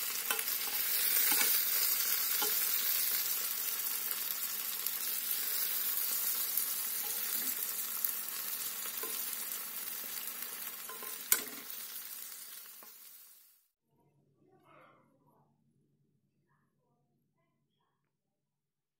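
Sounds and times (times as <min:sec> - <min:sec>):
vegetables sizzling in a frying pan: 0:00.0 - 0:13.6
tongs clicking: 0:00.2 - 0:03.0, 0:10.8 - 0:11.8.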